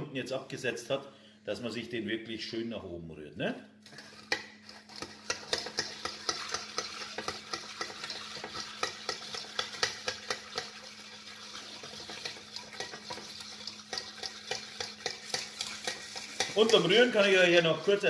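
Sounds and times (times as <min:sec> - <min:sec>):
spoon stirring ice in glass: 0:04.0 - 0:18.0.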